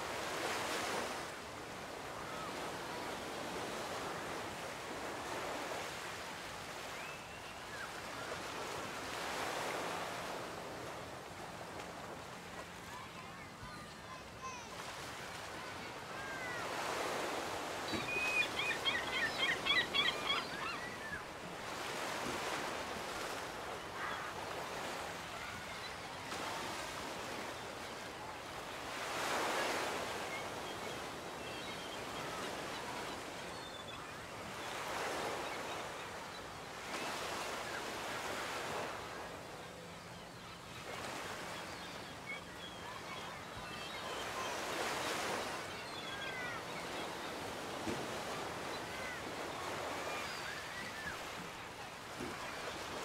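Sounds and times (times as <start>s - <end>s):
surf washing onto a beach: 0.0s - 1.5s.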